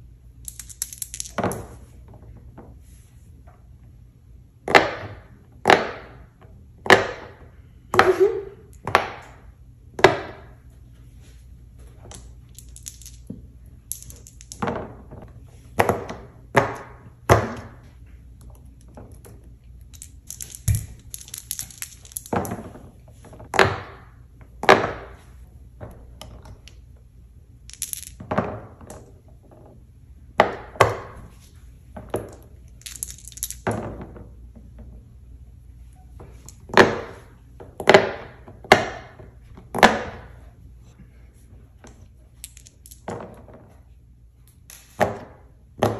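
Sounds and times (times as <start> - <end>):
dice shaken in hand: 0.4 - 1.4, 12.1 - 14.6, 19.9 - 22.5, 27.7 - 28.2, 32.7 - 33.7
dice rolling on silicone: 0.4 - 1.7, 12.0 - 16.9, 18.5 - 24.0, 27.7 - 29.7, 32.0 - 34.2.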